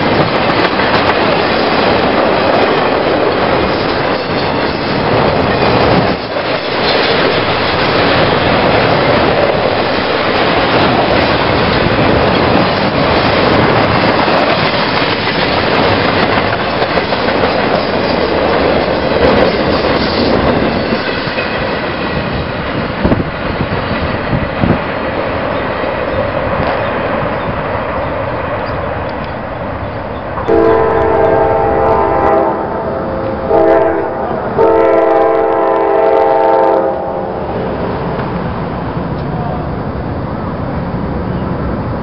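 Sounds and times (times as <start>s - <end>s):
train wheels rumbling and clacking: 0.0s - 42.0s
locomotive horn: 30.5s - 37.5s.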